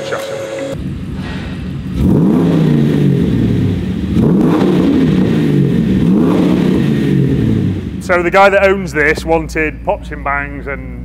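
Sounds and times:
car engine revving: 0.0s - 11.0s
engine rumbling idle: 0.6s - 11.0s.

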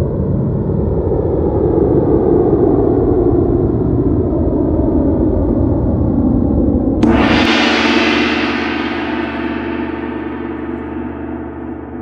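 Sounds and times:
deep gong-like hit ringing: 7.0s - 12.0s.

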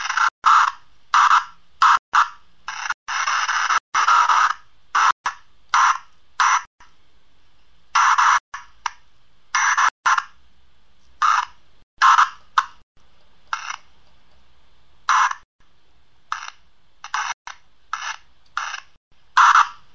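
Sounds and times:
hissing static bursts: 0.0s - 6.7s, 7.9s - 8.4s, 9.5s - 10.4s, 11.2s - 12.8s, 13.4s - 15.5s, 16.3s - 19.9s.

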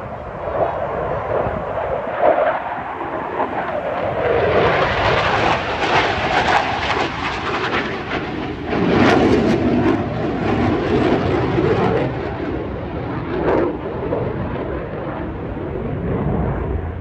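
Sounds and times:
fighter jet flying overhead: 0.0s - 17.0s.

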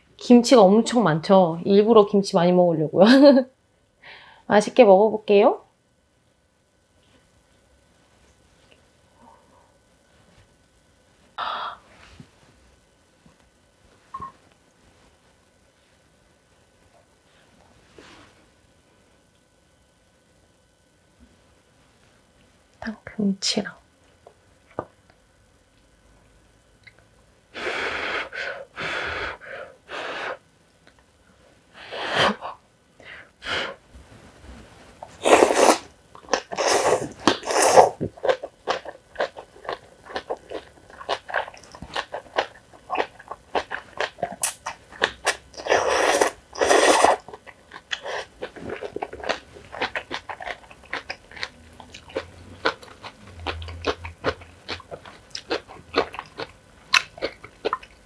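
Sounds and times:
loud noodle slurping: 35.2s - 39.4s, 40.5s - 47.3s
wet chewing and crunching: 35.3s - 58.0s.

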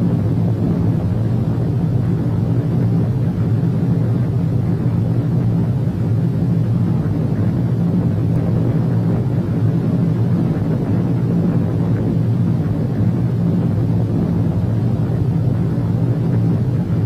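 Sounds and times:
deep rumbling explosion roar: 0.0s - 17.0s.

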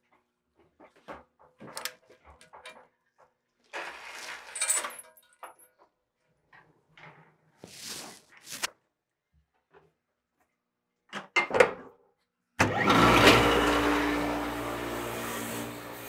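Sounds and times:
parts washer humming and hissing: 12.7s - 16.0s.

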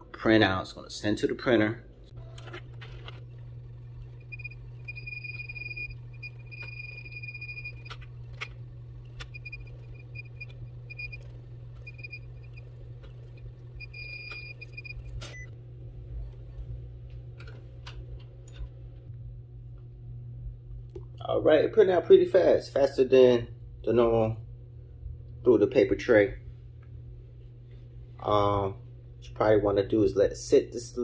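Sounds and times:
steady low hum: 0.0s - 31.0s
printer motor whine: 2.2s - 16.7s.

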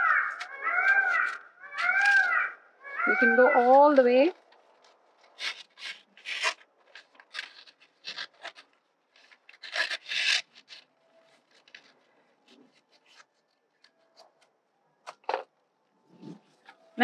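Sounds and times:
scissors snipping paper: 0.0s - 2.5s, 4.8s - 12.0s.

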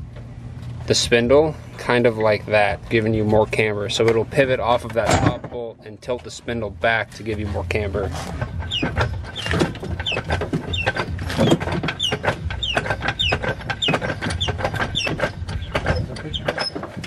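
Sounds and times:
suspension parts clicking and rattling: 0.1s - 17.0s.

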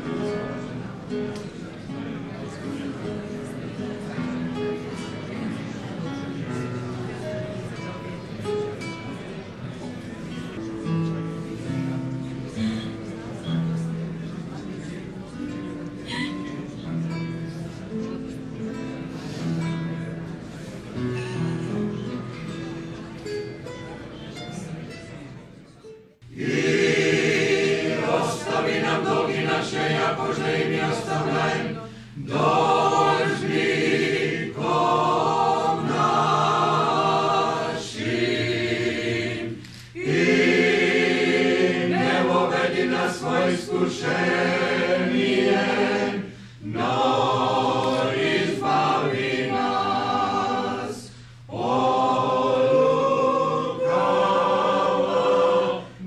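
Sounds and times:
choir chanting a cappella: 26.2s - 56.0s.

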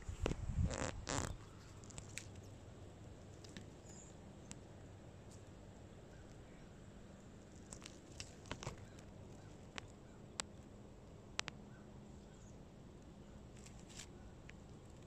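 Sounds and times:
faint low hum: 0.0s - 15.0s
faint sharp clicks: 11.3s - 11.6s.

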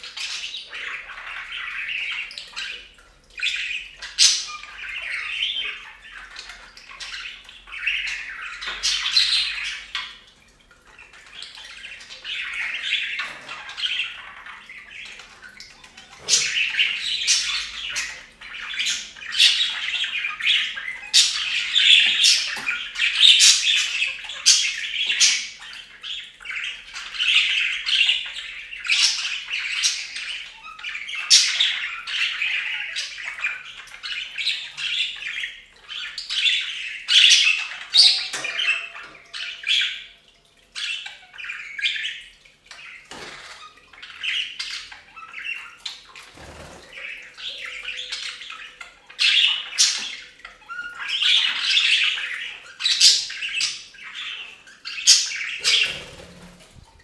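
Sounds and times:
budgerigars chattering: 11.0s - 40.2s, 40.8s - 57.0s.

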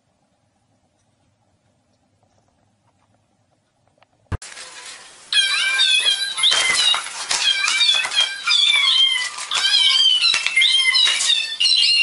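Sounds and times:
cat chirping and mewing: 5.3s - 12.0s.

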